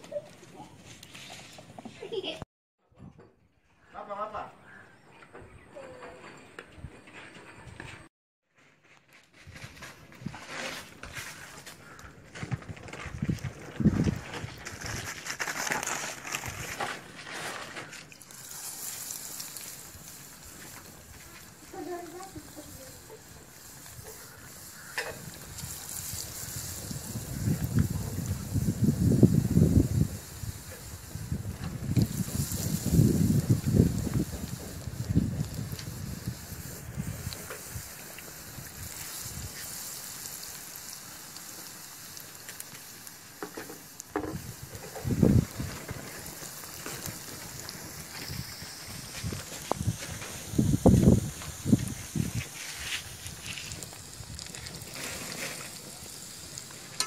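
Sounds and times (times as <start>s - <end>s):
fish sizzling in hot oil: 17.9s - 57.0s.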